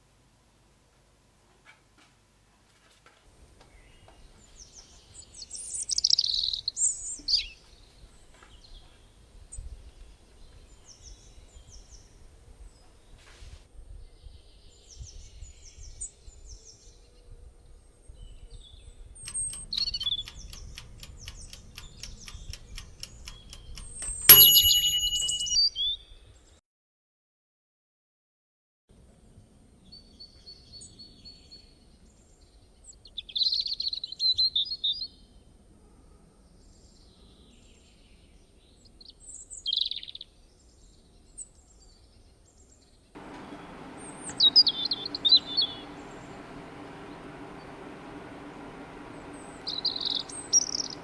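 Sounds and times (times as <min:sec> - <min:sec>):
birds chirping: 0:19.3 - 0:25.6, 0:43.2 - 0:51.0
sharp ringing click: 0:19.3 - 0:25.7
faint low rumble: 0:43.2 - 0:51.0.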